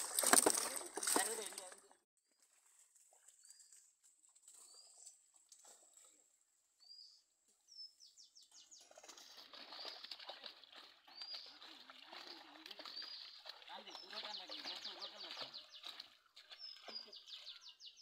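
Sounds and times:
water sloshing and splashing: 0.0 - 1.9, 8.6 - 17.8
bird chirps: 6.8 - 18.0.

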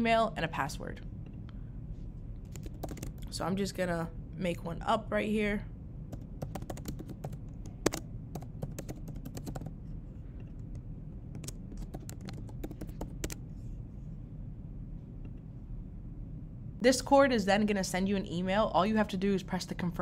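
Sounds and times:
low steady hum: 0.0 - 20.0
computer keyboard typing: 2.4 - 3.3, 6.1 - 9.8, 10.4 - 13.4.

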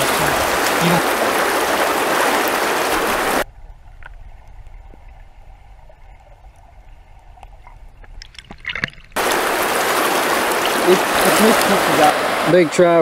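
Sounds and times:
river water rushing: 0.0 - 3.4, 9.2 - 13.0.

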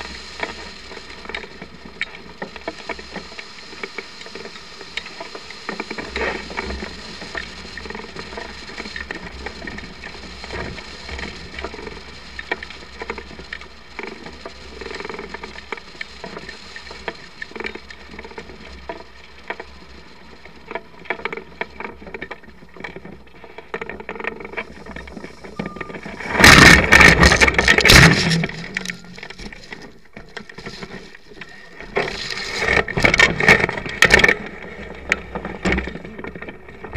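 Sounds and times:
air rushing over microphone: 24.6 - 29.9.

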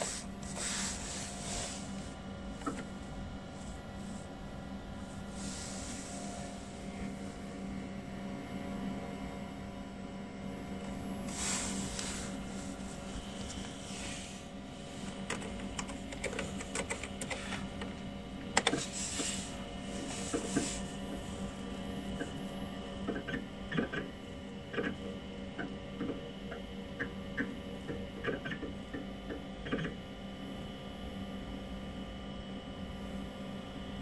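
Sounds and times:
computer humming: 0.0 - 31.6
keys clacking on keyboard: 15.3 - 17.5.

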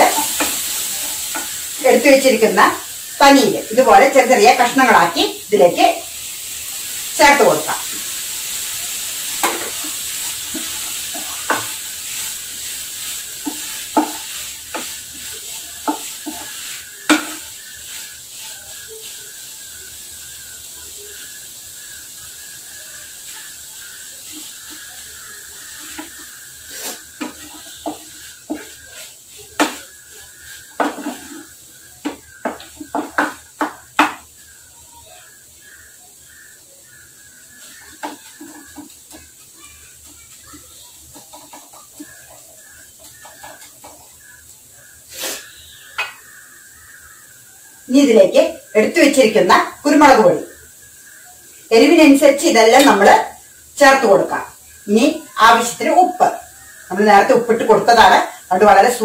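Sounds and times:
cheese sizzling in oil: 0.0 - 59.0
wooden spatula knocking on pan: 1.3 - 1.6, 9.4 - 11.8, 13.3 - 17.7, 25.8 - 26.4, 27.2 - 28.9, 29.5 - 30.0, 30.7 - 34.3, 37.8 - 39.4, 41.1 - 44.2, 46.0 - 46.3.

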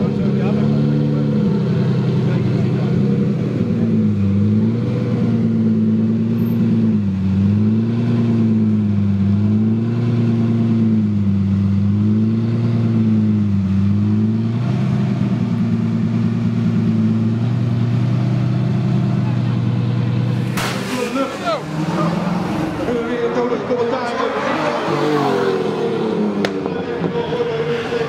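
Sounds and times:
sports car engine idling: 15.0 - 20.6.

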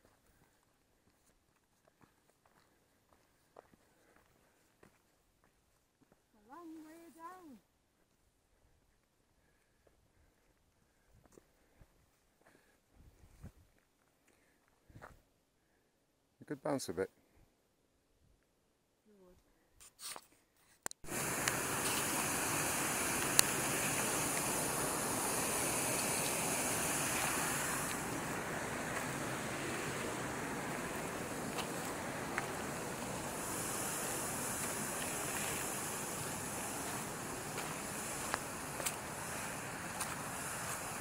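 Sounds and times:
faint ticks: 20.8 - 22.2, 23.1 - 24.5
thin high hiss: 21.0 - 41.0
wind rushing over microphone: 21.1 - 41.0.

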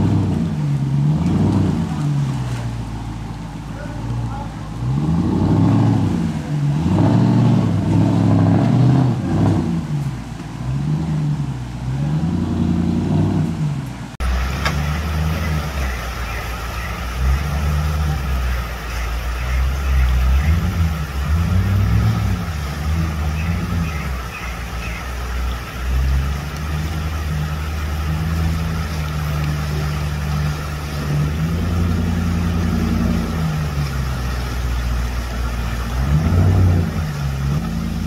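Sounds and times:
off-road vehicle engine revving: 0.0 - 38.0.

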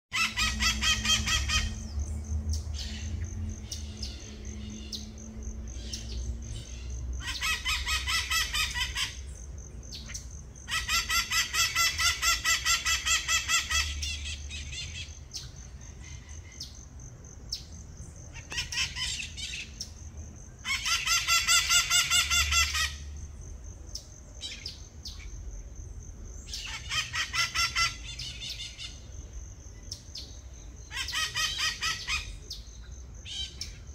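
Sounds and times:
parakeets screeching: 0.1 - 2.0, 5.8 - 9.2, 10.1 - 15.2, 20.7 - 23.0, 30.8 - 32.3.

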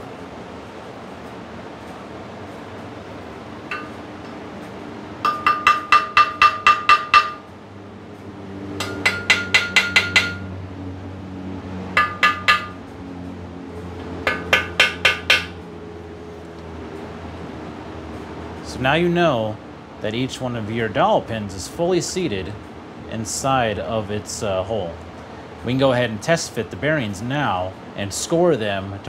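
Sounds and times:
ringing metal taps: 3.7 - 4.4, 5.2 - 7.5, 8.8 - 10.5, 12.0 - 12.8.

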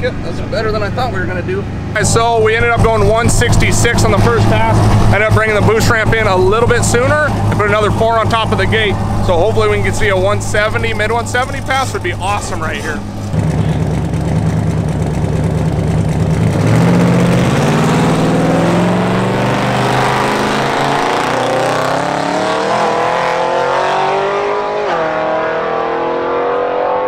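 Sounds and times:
car engine accelerating: 0.0 - 27.0.

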